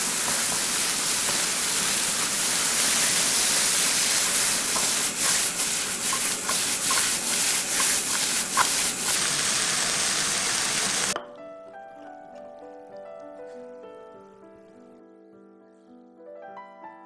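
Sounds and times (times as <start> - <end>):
greens sizzling in a wok: 0.0 - 11.2
spatula scraping and tapping pan: 4.7 - 8.9.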